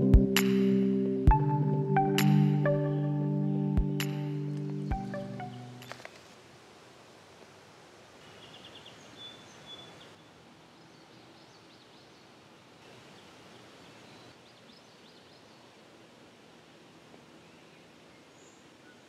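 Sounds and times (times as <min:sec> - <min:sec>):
faint high bird chirps: 0:04.2 - 0:06.0, 0:08.2 - 0:12.3.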